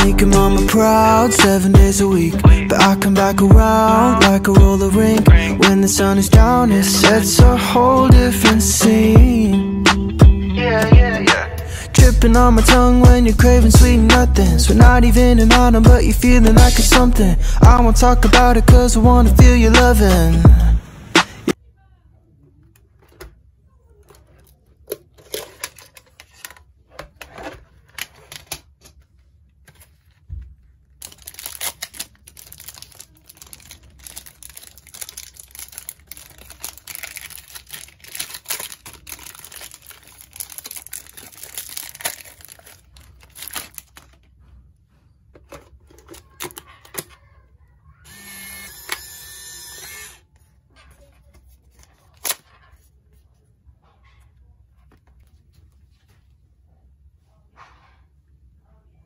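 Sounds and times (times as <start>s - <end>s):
foil wrapper tearing and crinkling: 31.0s - 44.3s
camera motor whirring: 48.1s - 50.2s.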